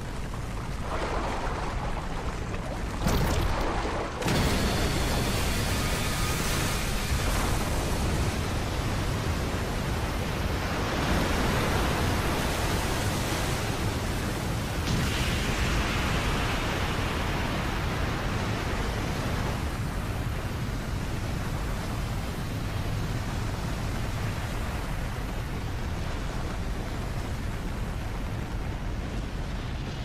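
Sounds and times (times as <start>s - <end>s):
magical energy blast rushing: 3.0s - 7.0s.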